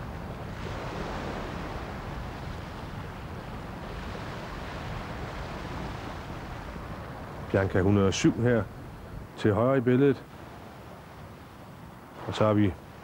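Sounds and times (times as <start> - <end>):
wind buffeting microphone: 0.0 - 9.5
choppy sea washing: 0.0 - 13.0.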